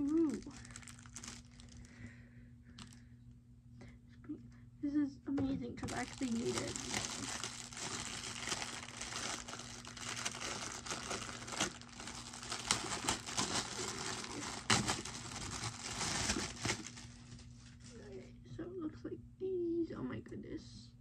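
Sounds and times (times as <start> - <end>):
plastic bag crinkling: 0.0 - 2.1, 2.8 - 3.0, 5.8 - 18.1.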